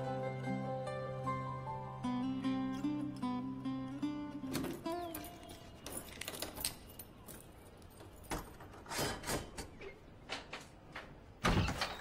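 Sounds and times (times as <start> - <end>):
keys jangling: 4.6 - 8.8.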